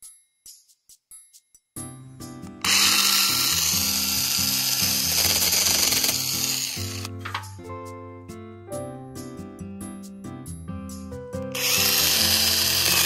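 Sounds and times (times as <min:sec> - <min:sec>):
background music: 0:00.9 - 0:13.0
small chainsaw cutting branches: 0:02.6 - 0:07.1, 0:11.5 - 0:13.0.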